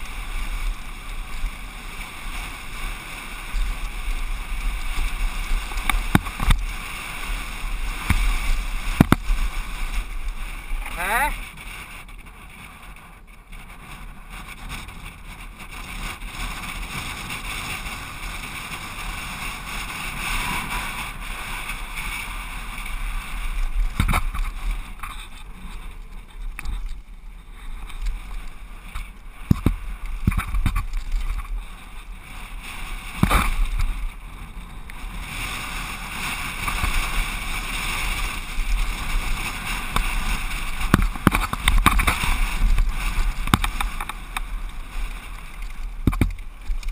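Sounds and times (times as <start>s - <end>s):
tyre noise on dirt: 0.0s - 46.9s
wind rush: 0.0s - 46.9s
bike clattering and knocking: 23.9s - 25.4s, 28.9s - 31.5s, 40.8s - 44.4s, 46.0s - 46.9s.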